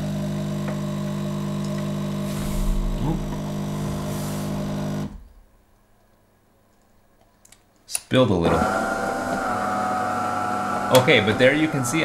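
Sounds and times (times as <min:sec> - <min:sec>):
espresso machine pump humming: 0:00.0 - 0:05.1, 0:08.6 - 0:12.0
short hisses: 0:02.2 - 0:04.8.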